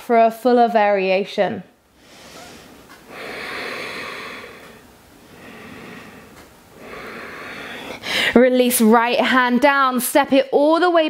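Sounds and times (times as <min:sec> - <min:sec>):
slow breathing: 0:01.9 - 0:08.4.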